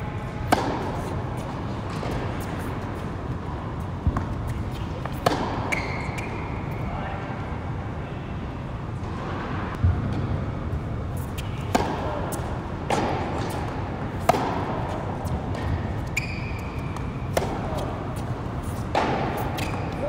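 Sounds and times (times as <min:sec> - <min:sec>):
steady low hum: 0:00.0 - 0:20.0
racquet striking tennis ball: 0:00.4 - 0:02.7, 0:04.0 - 0:06.4, 0:11.3 - 0:20.0.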